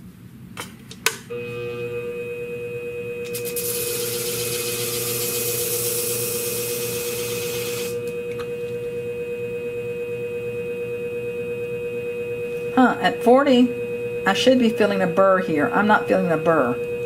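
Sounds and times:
sharpening machine motor hum: 0:01.4 - 0:17.0
blade grinding hiss: 0:03.3 - 0:08.0.

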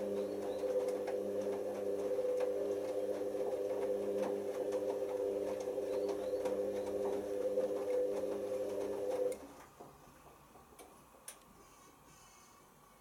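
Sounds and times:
washing machine motor hum: 0:00.0 - 0:11.3.

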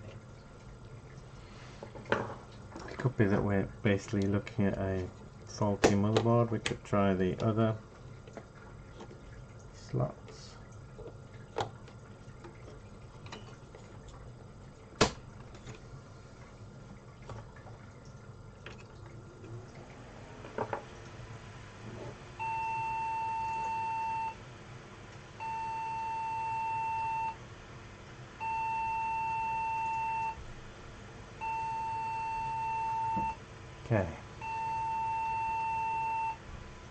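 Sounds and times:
long computer beeps: 0:22.4 - 0:24.4, 0:25.4 - 0:27.4, 0:28.4 - 0:30.4, 0:31.4 - 0:33.4, 0:34.4 - 0:36.4.

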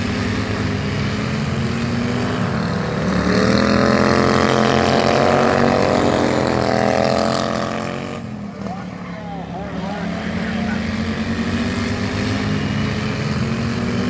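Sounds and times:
mower passing close by: 0:00.0 - 0:08.9
racing lawn mower engines: 0:00.0 - 0:14.0.

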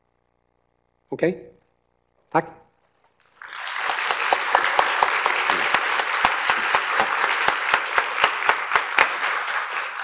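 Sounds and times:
audience applauding: 0:03.2 - 0:10.0
sharp loud claps: 0:03.3 - 0:10.0.

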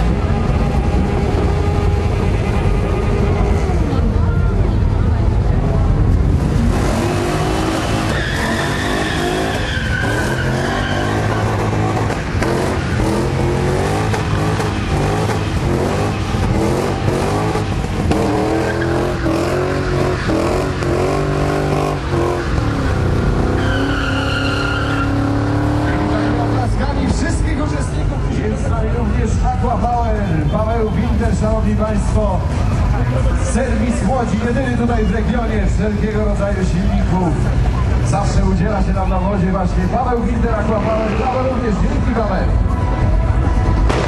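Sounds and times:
car engine at high revs: 0:00.0 - 0:29.1
tyres squealing: 0:07.3 - 0:22.8, 0:23.4 - 0:26.6.

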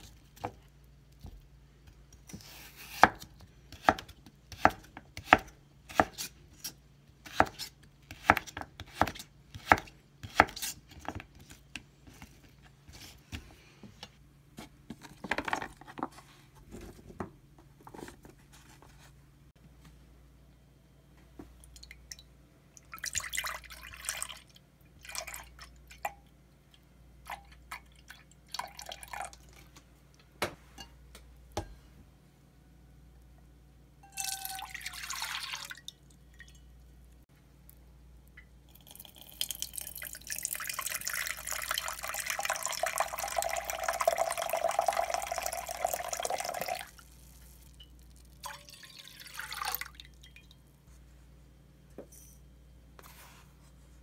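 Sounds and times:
liquid pouring into saucepan: 0:21.7 - 0:26.1, 0:34.0 - 0:36.7, 0:38.4 - 0:50.6.

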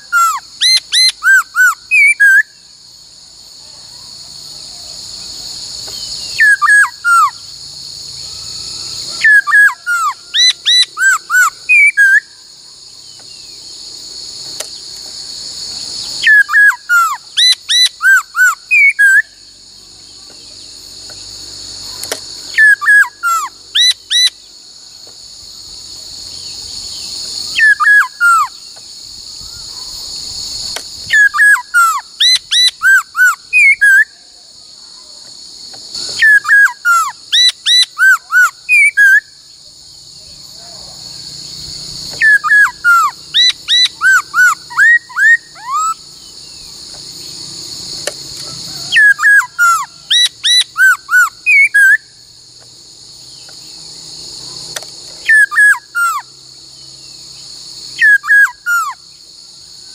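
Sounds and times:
bird singing whistled phrases: 0:00.0 - 0:02.6, 0:06.0 - 0:07.4, 0:09.1 - 0:12.4, 0:16.2 - 0:19.4, 0:22.5 - 0:24.4, 0:27.5 - 0:28.6, 0:31.1 - 0:34.2, 0:36.1 - 0:39.3, 0:42.2 - 0:46.0, 0:48.9 - 0:52.1, 0:55.2 - 0:56.3, 0:58.0 - 0:59.0
high insect buzz: 0:00.0 - 0:59.9.

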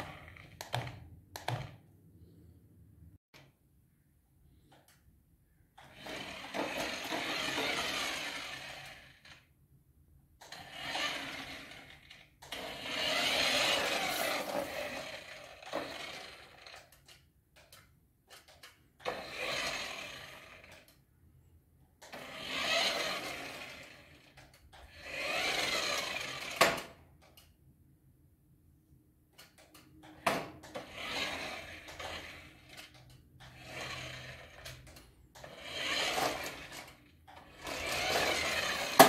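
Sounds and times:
toy car motor whirring: 0:00.0 - 0:01.8, 0:05.7 - 0:09.5, 0:10.4 - 0:21.0, 0:22.0 - 0:27.6, 0:29.4 - 0:39.0.

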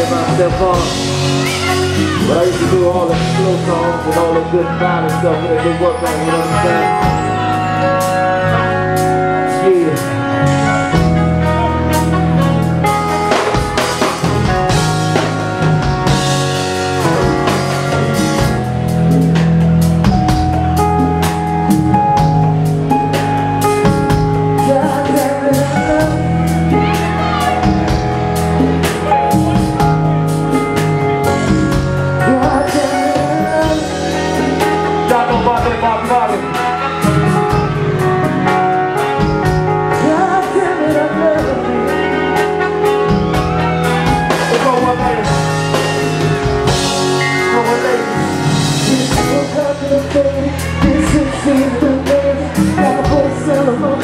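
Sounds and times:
man singing into a microphone: 0:00.0 - 0:07.2, 0:24.6 - 0:27.6, 0:32.2 - 0:37.3, 0:39.9 - 0:42.8, 0:47.2 - 0:54.0
drums and bass: 0:00.0 - 0:54.0
keyboard chords: 0:00.0 - 0:54.0.

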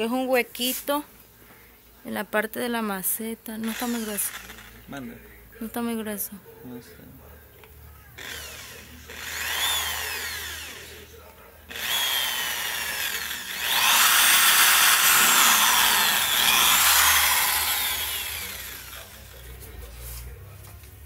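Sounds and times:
drill bit grinding through plastic: 0:03.6 - 0:04.8, 0:08.2 - 0:11.0, 0:11.7 - 0:19.4
electric drill motor whine: 0:03.6 - 0:04.8, 0:08.2 - 0:11.1, 0:11.7 - 0:19.4.

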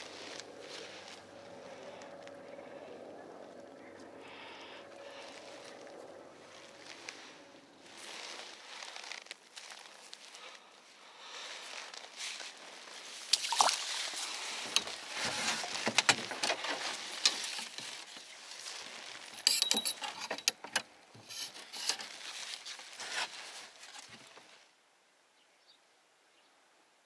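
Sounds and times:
rustling: 0:00.0 - 0:03.0, 0:03.8 - 0:20.6, 0:21.2 - 0:24.7
fishing gear clicks and knocks: 0:13.4 - 0:18.3.

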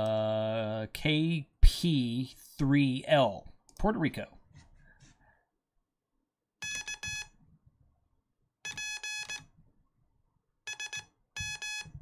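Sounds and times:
morse code beeps: 0:06.6 - 0:07.4, 0:08.7 - 0:09.5, 0:10.7 - 0:12.0.

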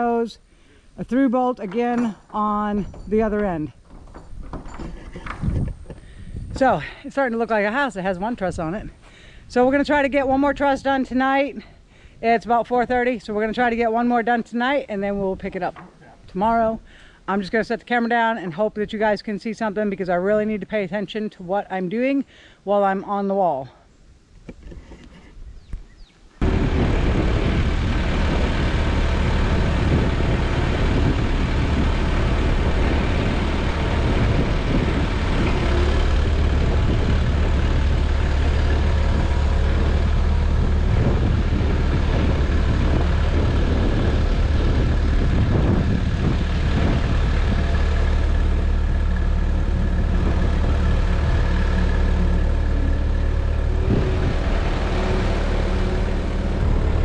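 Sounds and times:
engine running: 0:26.4 - 0:57.0.

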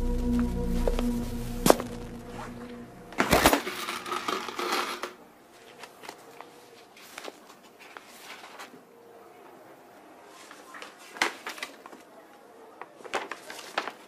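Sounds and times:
sustained music tones: 0:00.0 - 0:04.6.

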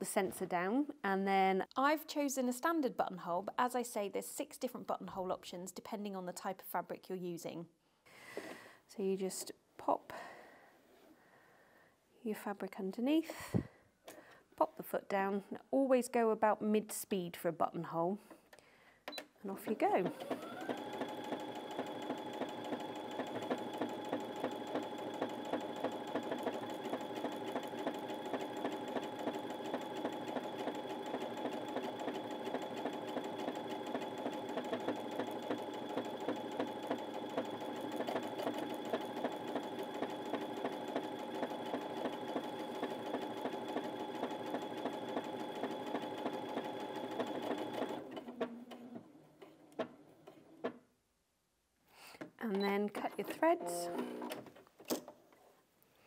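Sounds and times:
sewing machine stitching: 0:19.5 - 0:50.8.

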